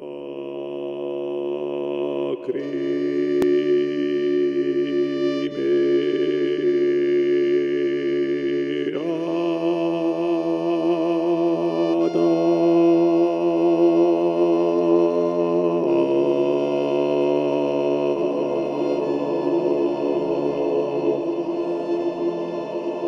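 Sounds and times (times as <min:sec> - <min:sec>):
electronic drone chord: 0:14.2 - 0:23.0.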